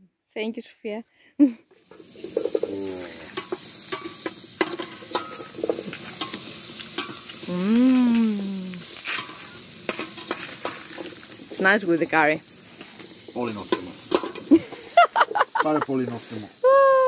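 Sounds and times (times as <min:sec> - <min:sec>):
vegetables sizzling in a pot: 0:01.4 - 0:17.0
spatula scraping and clicking pot: 0:01.9 - 0:07.4, 0:08.8 - 0:11.4, 0:12.8 - 0:14.9.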